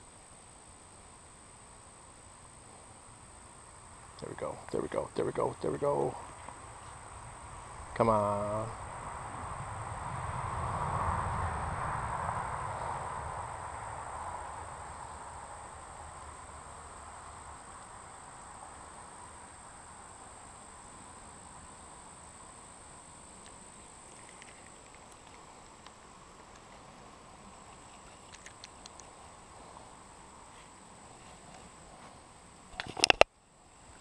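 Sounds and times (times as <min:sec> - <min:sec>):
crickets trilling: 0:00.0 - 0:34.0.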